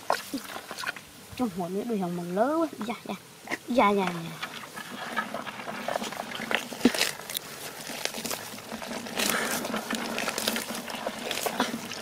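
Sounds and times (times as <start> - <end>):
wet mud squelching and scraping: 0.0 - 12.0
grass stems rustling: 3.4 - 12.0.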